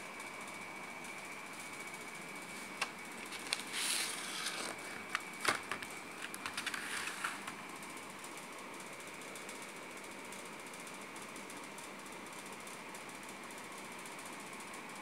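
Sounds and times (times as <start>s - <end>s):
crinkly plastic rustle: 2.7s - 7.6s
plastic pack clicking: 4.5s - 7.6s.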